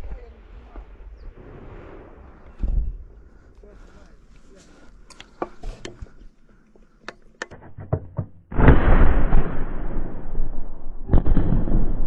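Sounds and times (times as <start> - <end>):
rocket launcher blast: 8.5 - 12.0.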